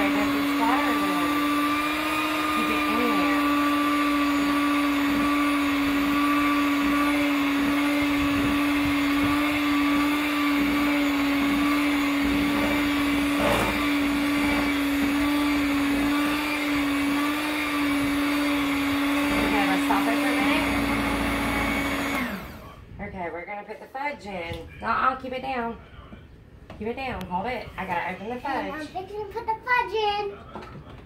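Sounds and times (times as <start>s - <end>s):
electric hand mixer running: 0.0s - 22.8s.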